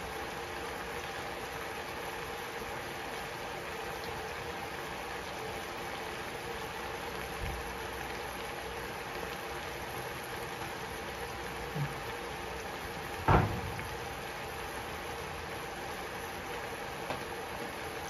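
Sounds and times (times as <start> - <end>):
meat simmering with bubbling hiss: 0.0 - 18.0
sharp knocks: 13.3 - 13.8.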